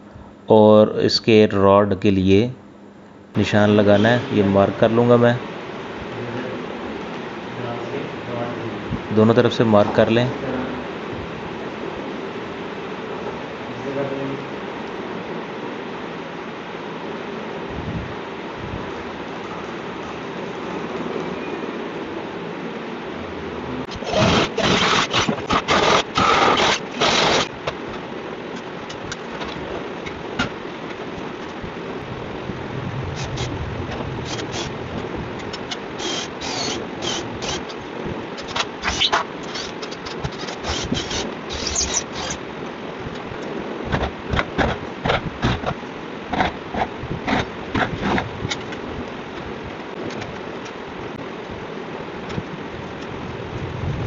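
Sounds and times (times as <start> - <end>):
steady background hiss: 0.0 - 54.0
electric drill boring into wood: 23.9 - 27.5, 34.2 - 34.7, 36.0 - 37.8, 38.4 - 42.4.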